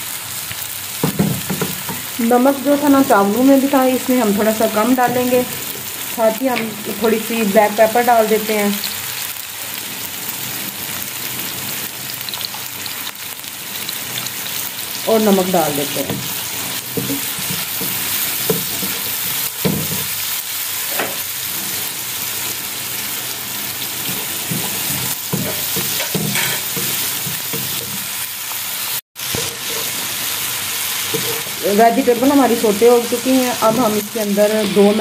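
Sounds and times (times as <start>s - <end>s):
vegetables sizzling in oil: 0.0s - 35.0s
spatula stirring and scraping: 16.0s - 20.2s, 23.7s - 28.1s, 29.2s - 30.2s, 31.0s - 31.6s
spatula knocking against pan: 24.5s - 28.0s.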